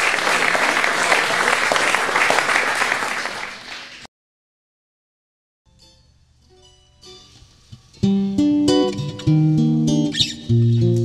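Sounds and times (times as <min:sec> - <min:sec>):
audience applauding: 0:00.0 - 0:04.1.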